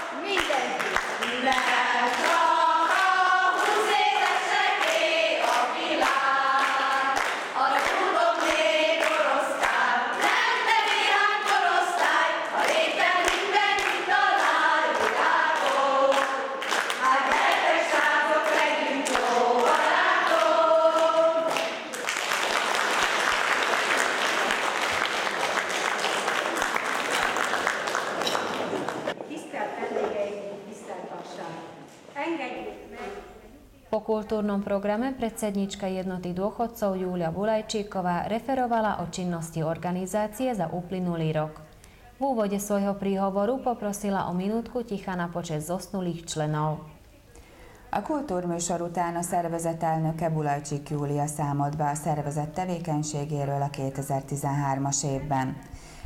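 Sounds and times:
women's choir singing: 0:00.0 - 0:26.4
audience applause: 0:06.0 - 0:29.2.

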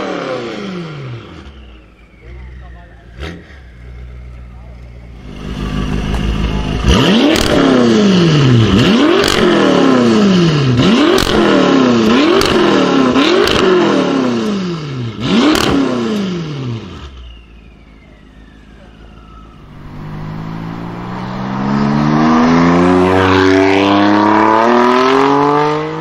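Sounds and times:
car engine revving: 0:00.0 - 0:26.0
exhaust cracks: 0:01.9 - 0:10.2.

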